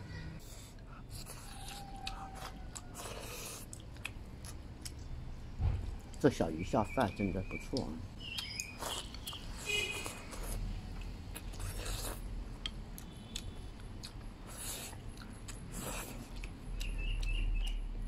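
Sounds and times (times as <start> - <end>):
chewing: 0.4 - 5.3, 7.7 - 18.0
birds chirping: 4.9 - 10.0, 16.7 - 18.0.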